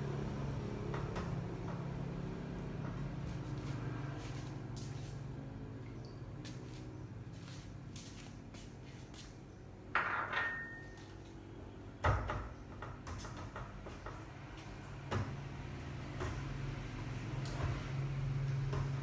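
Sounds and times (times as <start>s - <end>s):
dishes clinking: 9.9s - 11.1s.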